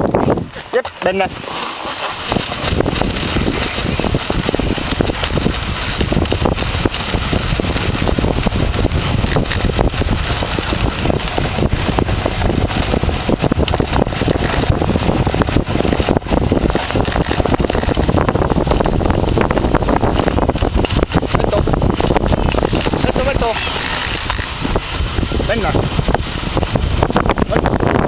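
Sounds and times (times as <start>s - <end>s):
sled scraping and rattling: 0.0s - 28.0s
wind buffeting microphone: 0.0s - 28.0s.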